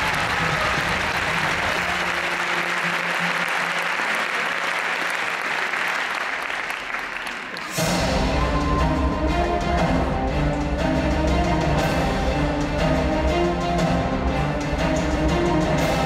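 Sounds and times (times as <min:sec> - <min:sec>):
large audience applauding: 0:00.0 - 0:08.8.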